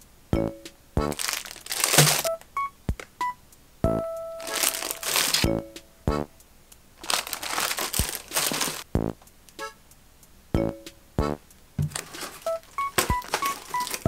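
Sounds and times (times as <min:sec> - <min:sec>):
plastic packaging crinkling: 0:01.1 - 0:02.3, 0:04.4 - 0:05.5, 0:07.0 - 0:08.9, 0:11.9 - 0:14.0
items set down on table: 0:11.8 - 0:13.8.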